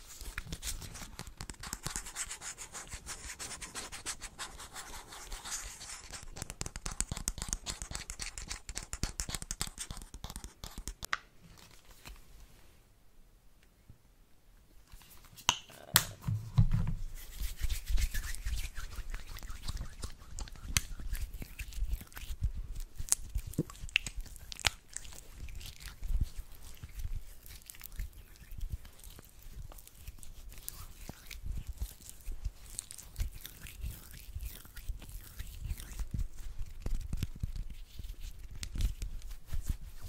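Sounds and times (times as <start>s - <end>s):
hands rubbing together: 17.0s - 40.0s.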